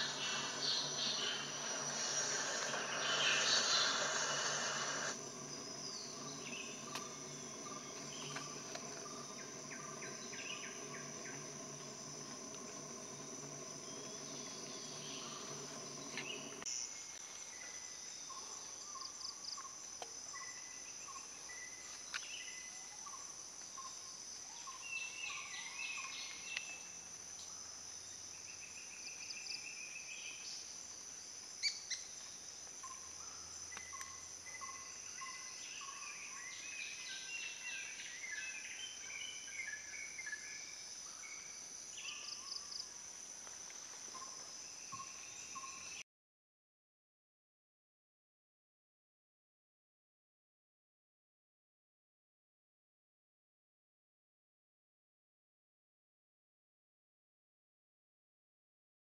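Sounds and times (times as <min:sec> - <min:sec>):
bird calls: 0:00.0 - 0:16.6
low hum: 0:00.0 - 0:16.7
high-pitched insect drone: 0:00.0 - 0:17.2.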